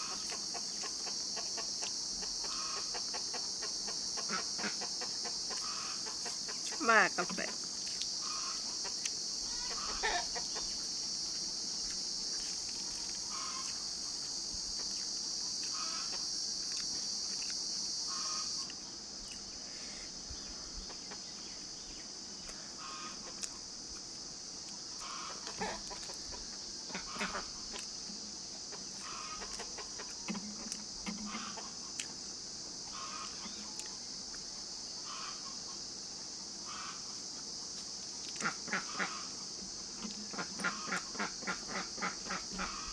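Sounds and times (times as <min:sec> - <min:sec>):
chickens clucking: 0:00.0 - 0:19.4, 0:20.8 - 0:21.7, 0:22.8 - 0:23.7, 0:24.9 - 0:32.2, 0:38.2 - 0:42.9
steady high hiss: 0:00.0 - 0:42.9
faint eating clicks: 0:07.8 - 0:08.2, 0:14.8 - 0:17.7.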